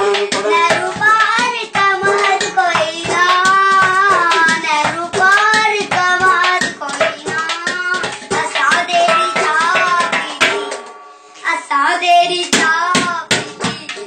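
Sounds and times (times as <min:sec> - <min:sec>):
person singing: 0:00.0 - 0:10.7
fast hand drumming: 0:00.0 - 0:10.8
frame drums: 0:00.0 - 0:11.2, 0:12.6 - 0:14.0
metal pot struck as drum: 0:00.0 - 0:11.2.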